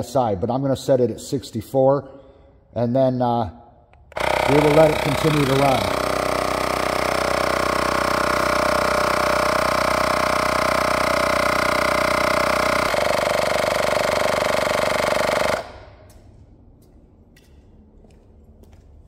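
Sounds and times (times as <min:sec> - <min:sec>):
tire inflator pump running: 0:04.0 - 0:16.0.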